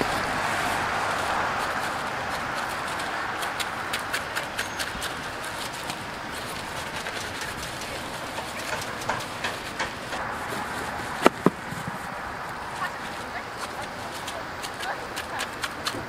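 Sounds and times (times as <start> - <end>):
loud sharp knocks: 11.2 - 11.8.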